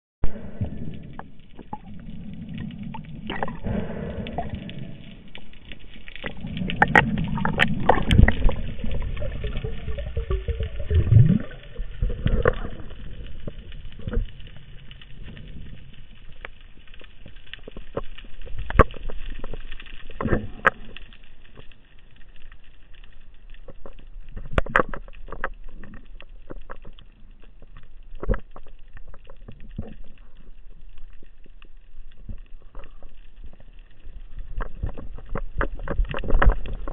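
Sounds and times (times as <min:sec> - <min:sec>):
muffled underwater water rushing: 0:00.2 - 0:36.9.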